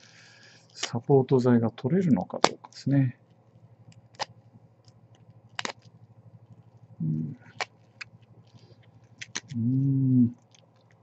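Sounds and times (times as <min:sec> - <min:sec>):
man humming: 0:07.0 - 0:07.4, 0:09.5 - 0:10.4.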